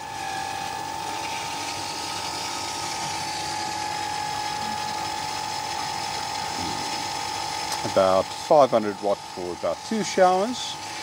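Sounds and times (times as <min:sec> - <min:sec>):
pump whining with hiss: 0:00.0 - 0:11.0.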